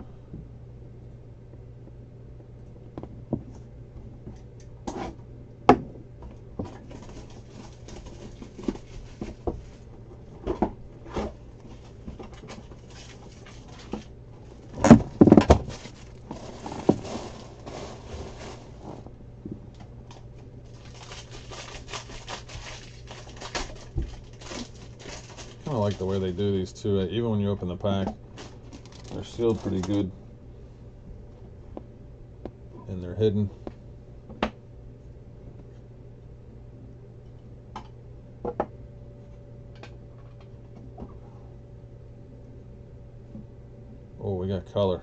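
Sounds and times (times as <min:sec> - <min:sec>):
plastic crinkling: 0:06.7 - 0:09.9, 0:11.6 - 0:19.1, 0:20.0 - 0:26.5, 0:27.8 - 0:30.1.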